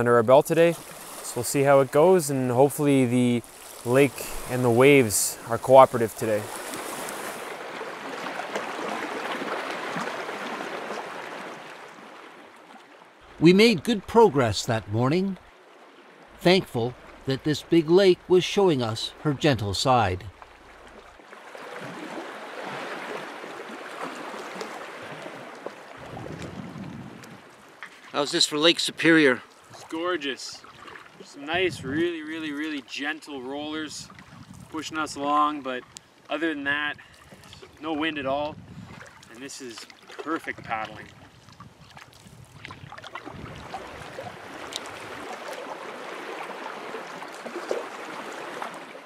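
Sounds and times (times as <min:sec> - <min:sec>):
water lapping at rocky shore: 0:00.0 - 0:49.0
water splashing and dripping: 0:00.6 - 0:28.8, 0:29.6 - 0:31.4, 0:38.4 - 0:49.0
wind rumbling on microphone: 0:26.0 - 0:27.6, 0:31.5 - 0:32.1, 0:34.0 - 0:35.1, 0:38.1 - 0:39.2, 0:40.4 - 0:45.3.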